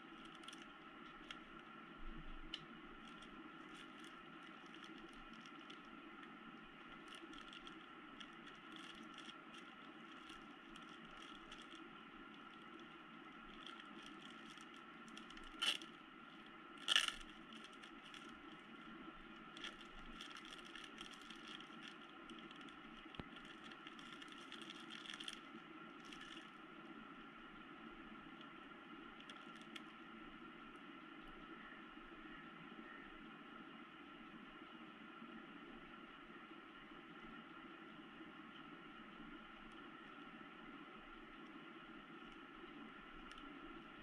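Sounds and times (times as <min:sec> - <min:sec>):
plastic bag crinkling: 0:00.0 - 0:01.6, 0:02.9 - 0:26.6, 0:29.2 - 0:29.9
small clicks: 0:07.0 - 0:12.9, 0:13.5 - 0:18.4.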